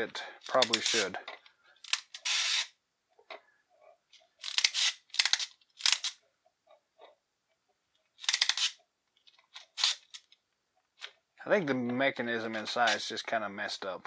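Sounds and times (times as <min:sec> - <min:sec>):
toy clockwork clicking and ratcheting: 0:04.4 - 0:06.2, 0:08.2 - 0:08.8.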